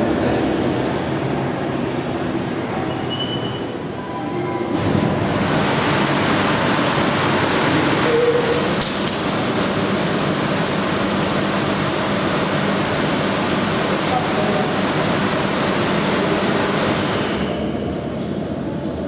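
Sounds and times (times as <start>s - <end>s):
ventilation air rushing: 4.7s - 19.0s.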